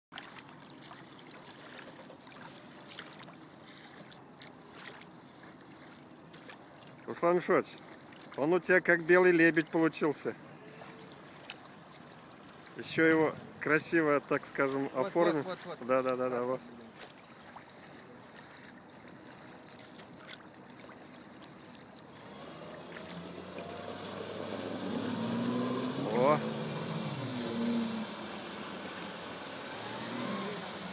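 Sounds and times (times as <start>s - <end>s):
small waves lapping and splashing: 0.1s - 30.9s
outboard motor running: 14.4s - 30.9s.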